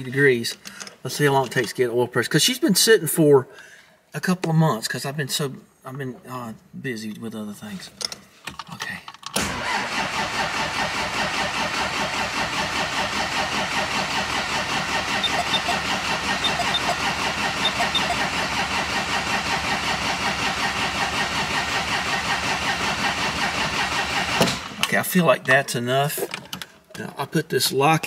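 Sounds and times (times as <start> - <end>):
starter motor cranking engine: 9.4 - 24.8.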